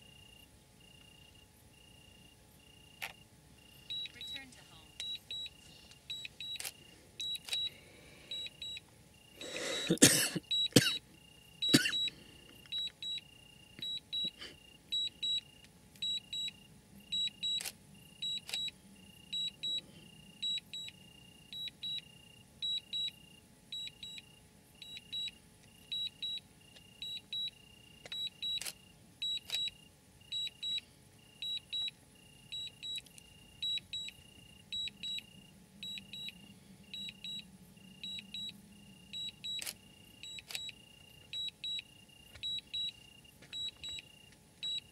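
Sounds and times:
insects chirping: 0.0s - 44.9s
sharp clicks: 39.5s - 42.9s.

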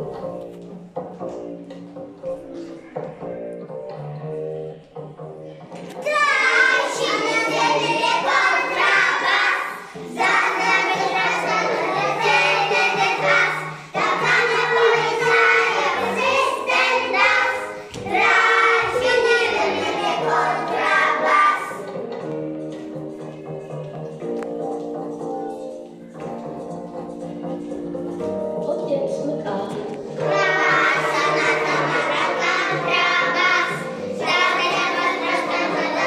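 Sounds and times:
backing music: 0.0s - 36.0s
children singing: 5.9s - 22.0s, 30.0s - 36.0s.

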